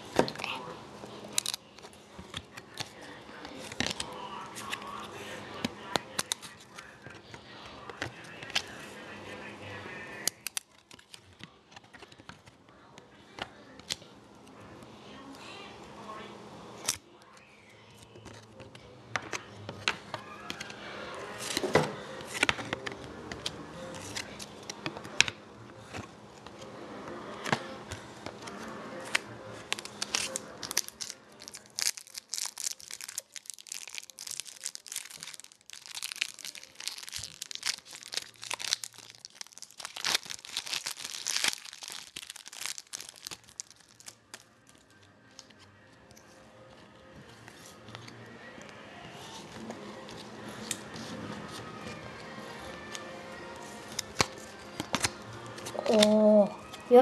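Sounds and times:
faint music: 0.0s - 57.0s
foil wrappers crinkling and tearing: 1.3s - 5.1s, 29.0s - 45.5s, 52.7s - 57.0s.

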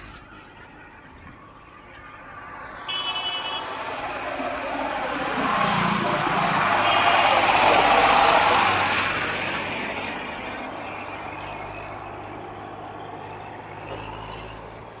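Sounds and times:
tractor diesel engine passing: 2.3s - 15.0s.

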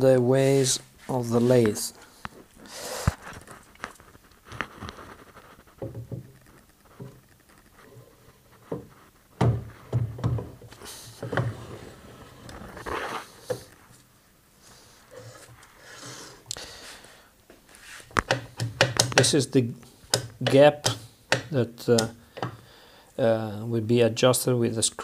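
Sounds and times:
metal clicks and knocks: 5.8s - 7.6s, 8.7s - 11.6s, 18.2s - 19.4s, 20.1s - 22.6s.

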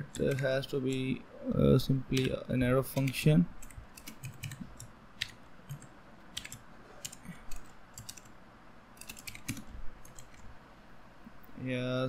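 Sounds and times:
typing on computer keyboard: 0.0s - 1.1s, 2.1s - 8.3s, 9.0s - 10.4s.

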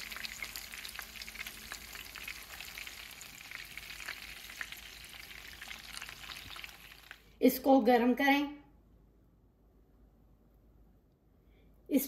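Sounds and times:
meat sizzling and crackling in oil: 0.0s - 7.3s.

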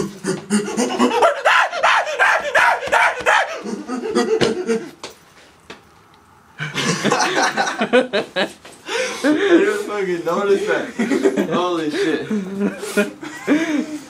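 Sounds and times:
young men laughing: 0.0s - 5.1s, 6.6s - 14.0s
young men yelping: 0.3s - 4.9s.

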